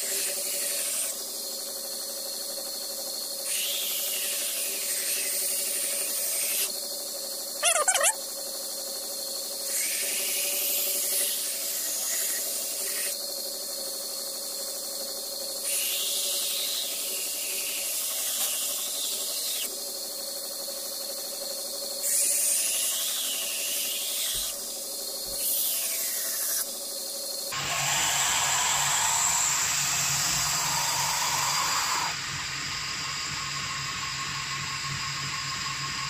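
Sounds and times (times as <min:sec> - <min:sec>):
belt grinder motor hum: 0:27.5 - 0:32.3.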